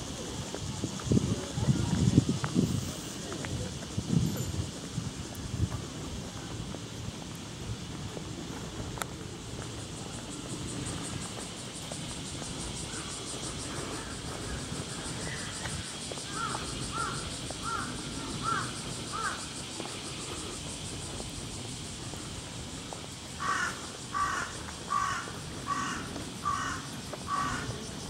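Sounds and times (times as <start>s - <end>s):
crow cawing: 16.3s - 19.4s, 23.4s - 27.7s.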